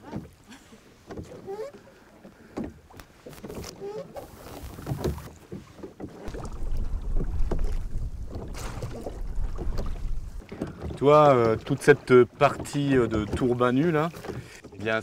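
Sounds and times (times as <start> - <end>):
oars splashing in water: 0.0 - 15.0
oars knocking: 1.0 - 15.0
wind rumble on microphone: 6.3 - 10.4.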